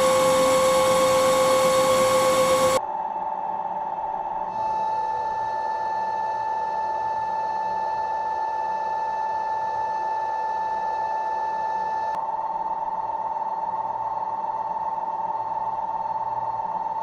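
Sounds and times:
cutting hiss: 0.0 - 2.8
lathe high whine: 0.0 - 2.8.

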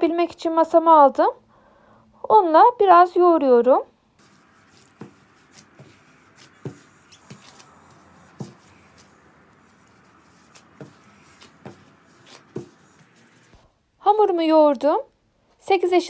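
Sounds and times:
dough thudding on stone: 4.2 - 13.5.

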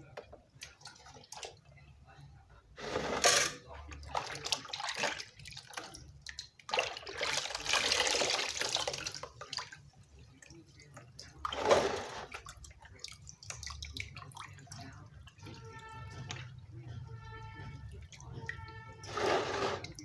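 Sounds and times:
water dripping into basin: 3.9 - 11.5, 12.4 - 19.1
hands sloshing water in basin: 3.9 - 20.0.

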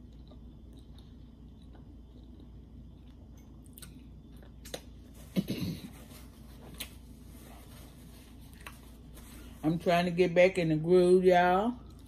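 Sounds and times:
person chewing: 0.0 - 5.5, 8.5 - 9.1.

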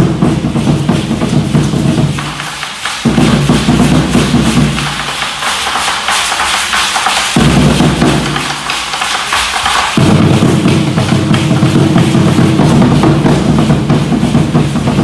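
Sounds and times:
wooden drum beating: 0.0 - 15.0.

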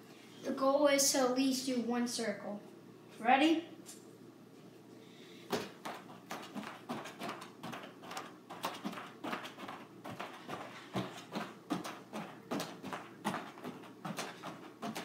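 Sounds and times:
hands slapping a mat: 5.5 - 15.0.

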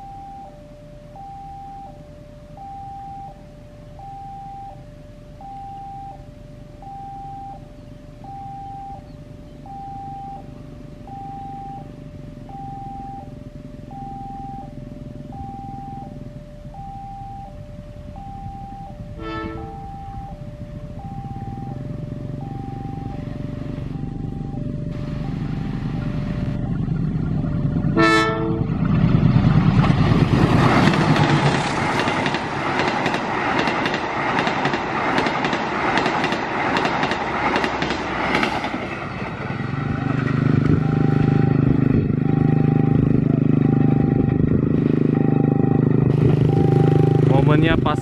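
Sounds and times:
two-tone crossing bell: 0.0 - 26.6, 40.7 - 45.9
low engine hum: 0.0 - 48.0
locomotive horn blast: 19.0 - 20.4, 27.8 - 29.2, 40.6 - 47.3
train wheels clattering: 28.6 - 40.8.

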